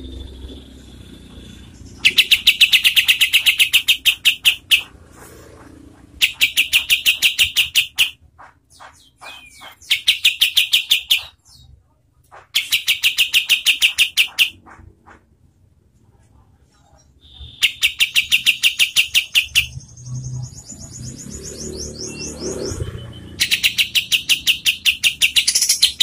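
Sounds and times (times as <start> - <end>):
bird singing rapid high notes: 0.0 - 5.0, 6.2 - 11.7, 12.5 - 14.6, 17.2 - 26.0
soft bird calls: 0.0 - 14.8.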